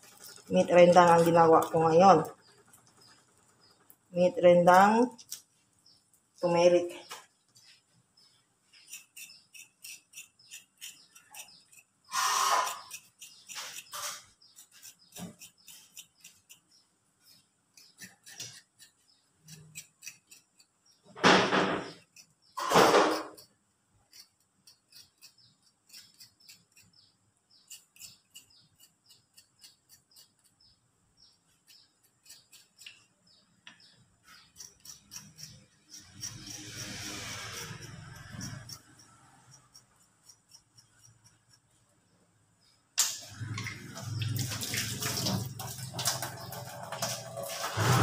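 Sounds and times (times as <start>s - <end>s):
knife scraping roots: 8.6s - 21.0s, 24.1s - 27.0s, 27.6s - 30.6s, 31.5s - 33.1s, 34.2s - 41.8s, 43.1s - 48.0s.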